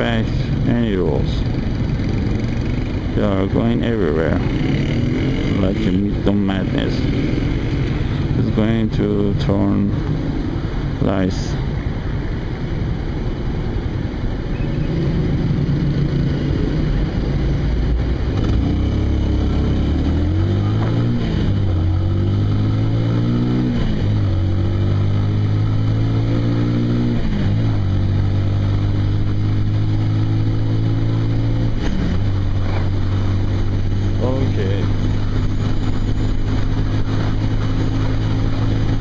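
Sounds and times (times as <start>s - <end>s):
motorcycle engine accelerating: 0.0s - 11.0s, 13.9s - 39.0s.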